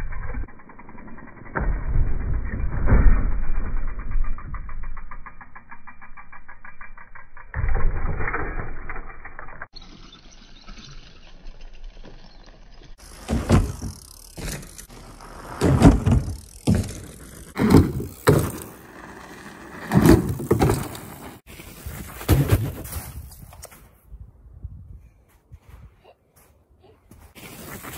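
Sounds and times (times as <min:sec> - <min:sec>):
bike thudding and rattling: 0:00.0 - 0:24.4
bike tyres rolling on gravel: 0:09.7 - 0:23.5.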